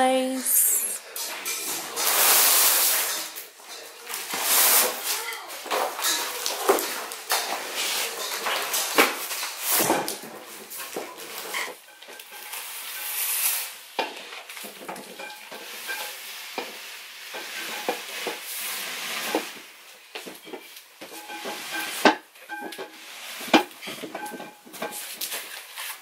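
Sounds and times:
cardboard box scraping across floor: 18.5s - 19.6s, 22.9s - 23.6s.

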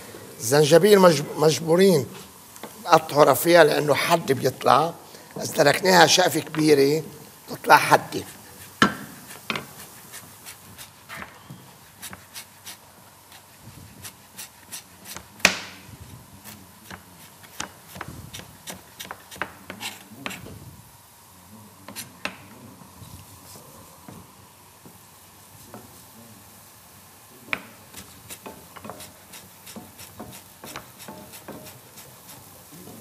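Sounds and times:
knife chopping on board: 8.7s - 9.8s, 27.5s - 33.0s.

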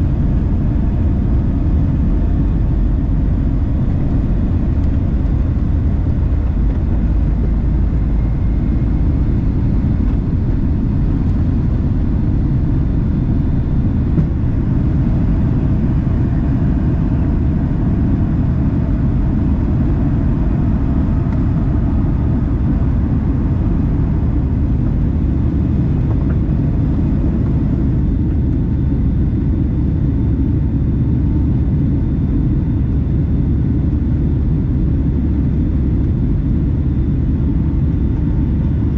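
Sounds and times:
jet engines rumbling in cabin: 0.0s - 38.9s.

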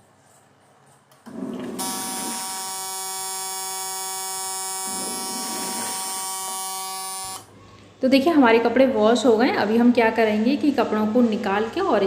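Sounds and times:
washing machine timer buzzer: 1.7s - 7.5s.

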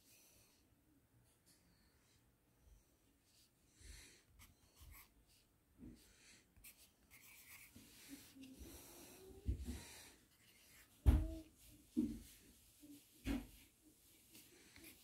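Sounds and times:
pencil scratching on paper: 4.4s - 5.1s, 6.6s - 9.0s
thump: 11.0s - 11.4s.

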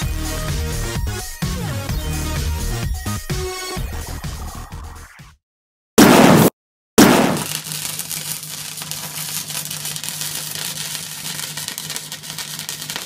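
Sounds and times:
loud explosion blast: 6.0s - 7.6s
welding arc crackling: 7.0s - 13.0s.

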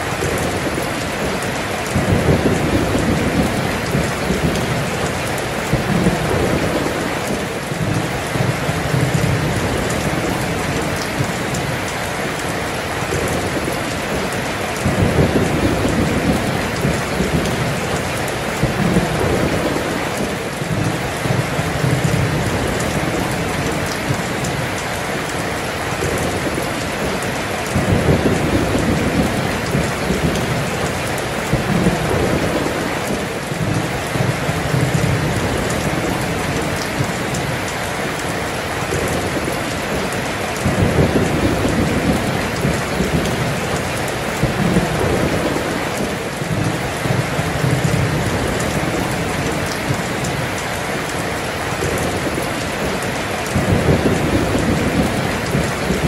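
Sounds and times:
heavy rain pouring: 0.0s - 56.0s
thunder rolling: 0.2s - 11.8s, 13.0s - 24.6s, 27.8s - 37.6s, 38.8s - 50.4s, 51.8s - 56.0s.

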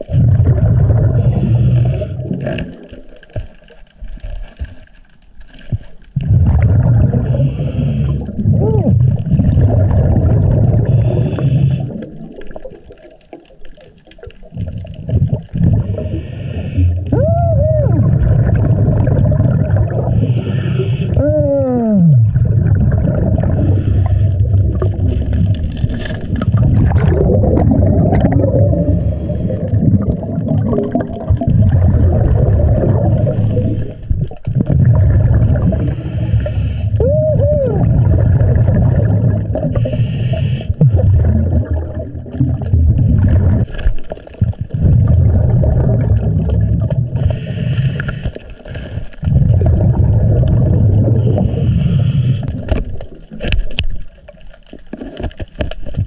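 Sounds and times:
bubbles gurgling underwater: 0.0s - 4.8s, 5.5s - 56.0s.

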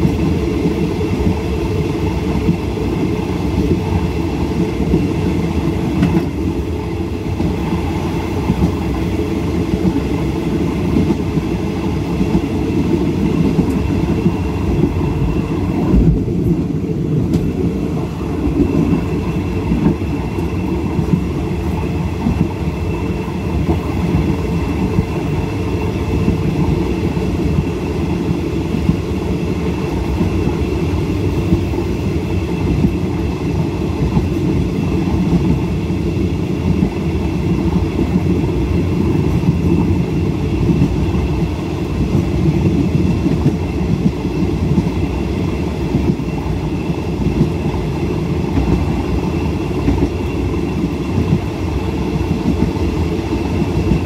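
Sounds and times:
train rumbling on rails: 0.0s - 54.0s.

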